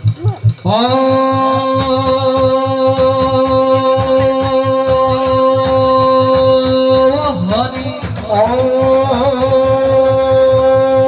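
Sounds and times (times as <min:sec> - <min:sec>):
drums beating: 0:00.0 - 0:11.0
person singing long note: 0:00.6 - 0:11.0.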